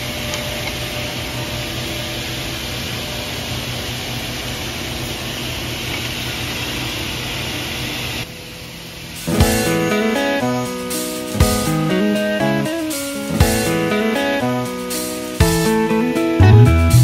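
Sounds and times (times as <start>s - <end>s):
woodworking machinery hiss: 8.8s - 15.9s
guitar music: 9.3s - 17.0s.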